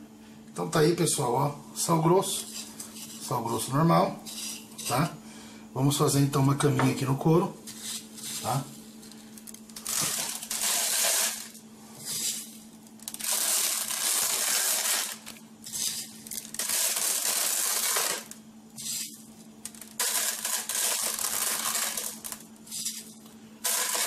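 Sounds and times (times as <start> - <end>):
rock salt rattling into a tub: 9.4 - 24.0.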